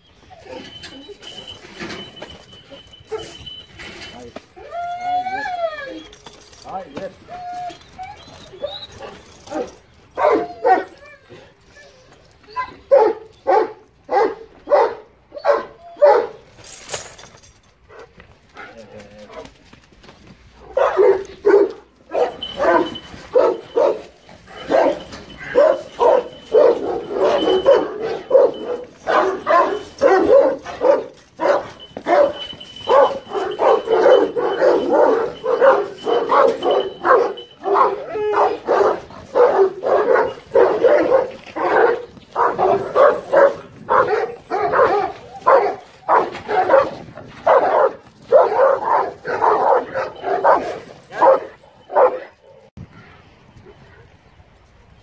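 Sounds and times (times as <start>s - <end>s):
large dogs barking deeply: 20.7s - 52.7s.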